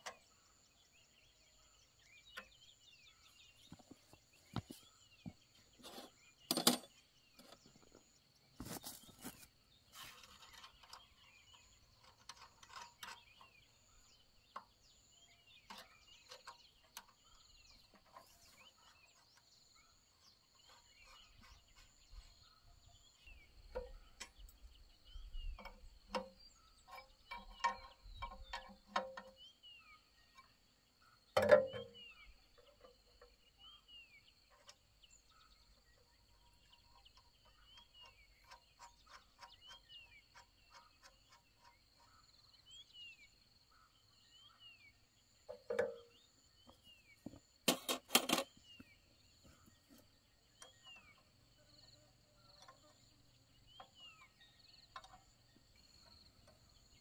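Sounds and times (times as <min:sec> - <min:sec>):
birds chirping: 0:00.0 - 0:57.0
knocks and clinks: 0:06.5 - 0:07.0.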